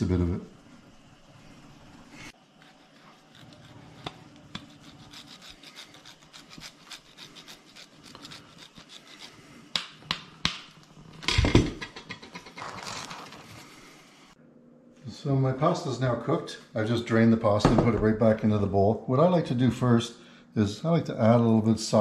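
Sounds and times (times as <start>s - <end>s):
scraping and rubbing: 2.4s - 9.7s, 11.8s - 14.1s.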